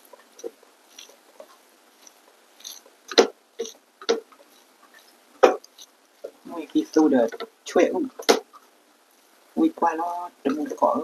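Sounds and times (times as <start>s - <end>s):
chewing clicks: 0.4s - 2.9s, 4.4s - 6.3s.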